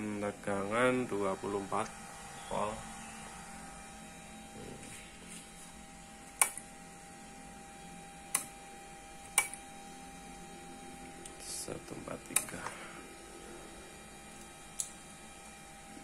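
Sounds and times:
faint electrical hum: 0.0s - 16.0s.

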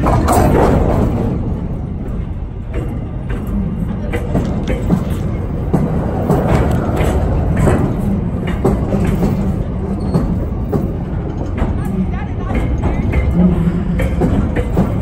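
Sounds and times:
freight wagons rolling: 0.0s - 15.0s
wheels and couplings clanking: 0.0s - 15.0s.

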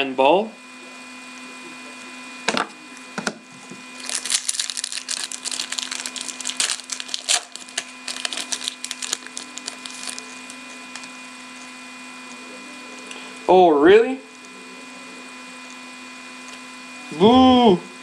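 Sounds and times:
foil wrapper crinkling: 4.0s - 11.2s.

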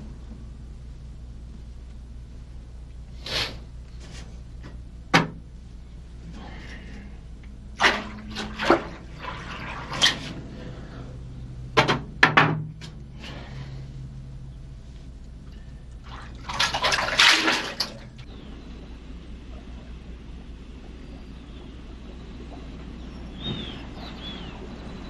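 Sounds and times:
low steady hum: 0.0s - 25.0s
water splashing: 7.7s - 10.6s, 16.0s - 18.3s
water pouring into basin: 7.8s - 10.2s, 16.0s - 18.2s.

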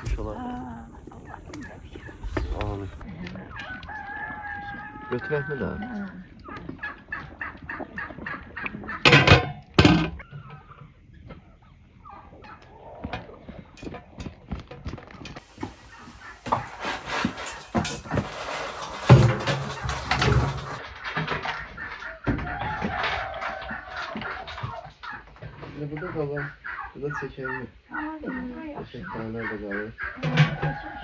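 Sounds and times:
poultry warbling call: 0.0s - 9.4s, 25.9s - 31.0s
poultry clucking: 0.0s - 31.0s.

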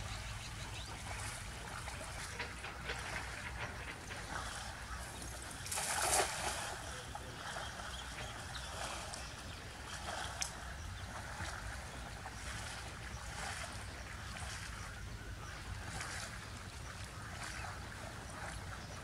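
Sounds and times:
steady low rumble: 0.0s - 5.8s
net splashing into water: 5.6s - 6.9s.

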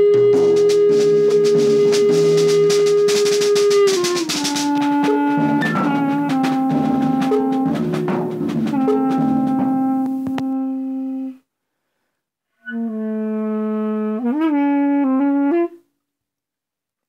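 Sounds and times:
reed wind instrument playing: 0.0s - 11.4s.

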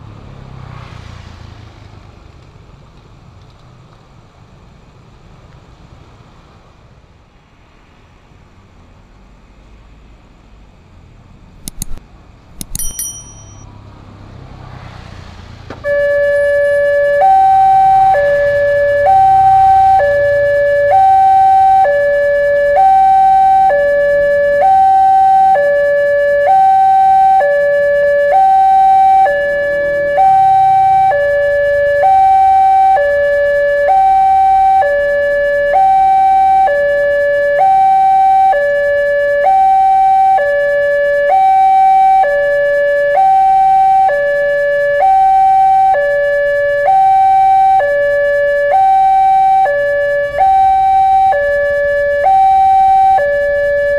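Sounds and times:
two-tone crossing alarm: 11.7s - 12.0s, 12.6s - 13.6s, 15.8s - 53.9s.

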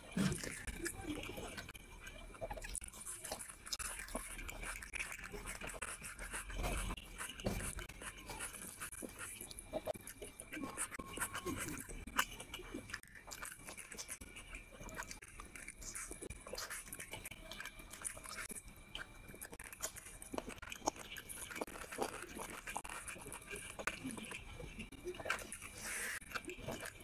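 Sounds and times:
chewing and biting: 0.0s - 27.0s.

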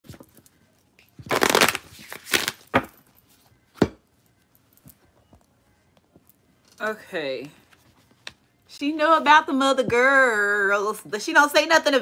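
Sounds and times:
cards being shuffled: 1.2s - 2.8s.

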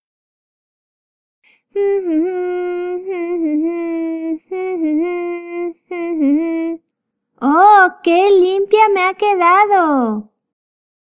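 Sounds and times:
girl humming a tune: 1.7s - 6.8s.

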